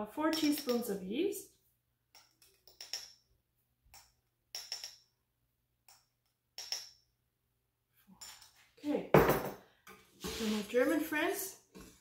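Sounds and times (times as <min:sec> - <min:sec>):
metal spoon clinking: 0:00.3 - 0:01.0, 0:02.1 - 0:03.2, 0:03.9 - 0:05.1, 0:05.9 - 0:07.0.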